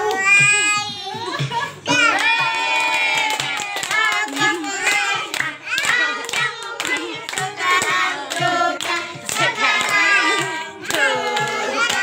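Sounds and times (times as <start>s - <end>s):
hands clapping: 1.4s - 12.0s
group singing a birthday song: 1.5s - 12.0s.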